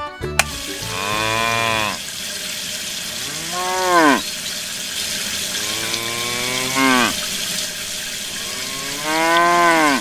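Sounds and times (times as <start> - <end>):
water spraying from shower head: 0.4 - 10.0
cow mooing: 0.8 - 2.0, 3.2 - 4.3, 5.6 - 7.2, 8.3 - 10.0.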